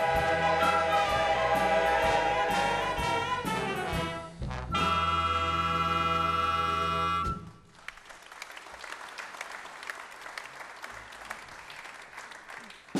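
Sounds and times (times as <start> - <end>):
audience applauding: 7.6 - 12.9.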